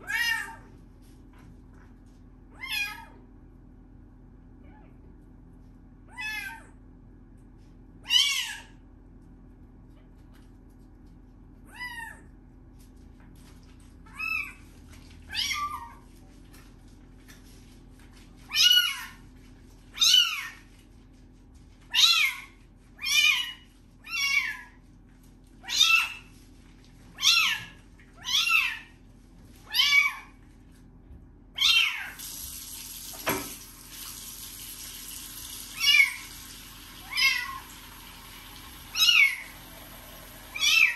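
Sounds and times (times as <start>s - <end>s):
kitten meowing: 29.7s - 30.3s, 35.8s - 36.2s, 37.0s - 37.6s
tap running: 32.2s - 40.7s.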